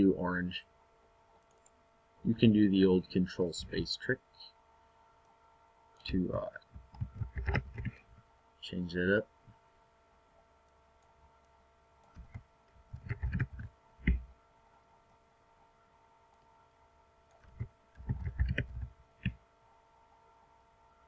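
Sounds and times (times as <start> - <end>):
keyboard keys clicking: 12.0 - 14.2, 17.3 - 19.4.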